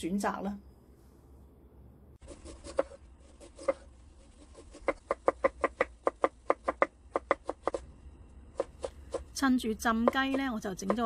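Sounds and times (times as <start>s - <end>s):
knife chopping on wooden board: 2.4s - 3.9s, 4.5s - 7.8s, 8.5s - 9.4s.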